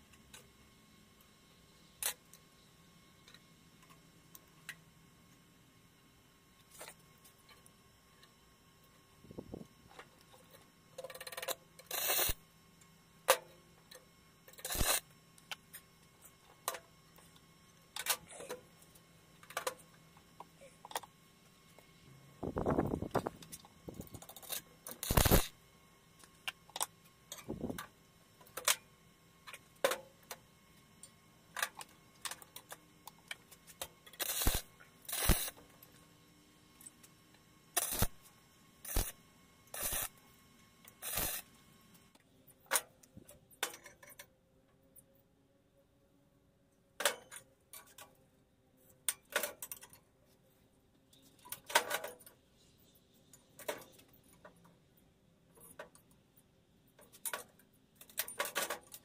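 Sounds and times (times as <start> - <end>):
arc welder crackling: 9.9 - 21.8, 22.5 - 25.6, 29.4 - 36.0, 36.8 - 42.2.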